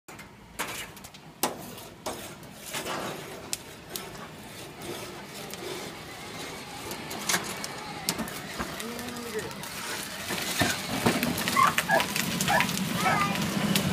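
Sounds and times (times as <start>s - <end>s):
barbecue grill knocks and clatters: 0.1s - 4.4s, 10.2s - 12.7s.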